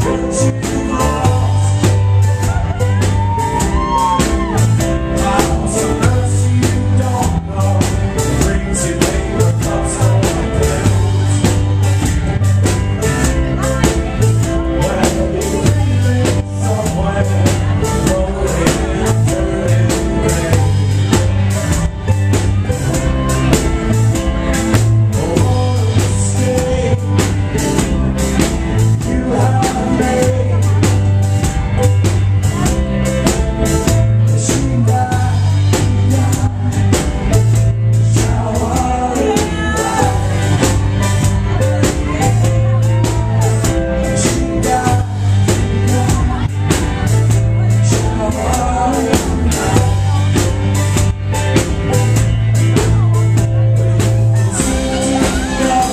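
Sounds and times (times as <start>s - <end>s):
drum kit playing fast rhythm: 0.0s - 55.9s
electric guitars: 0.0s - 55.9s
heavy bass line: 0.0s - 55.9s.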